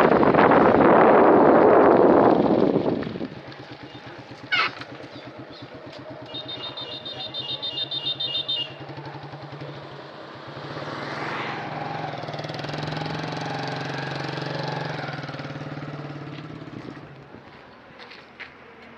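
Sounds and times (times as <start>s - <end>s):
vehicle engine running: 0.0s - 18.9s.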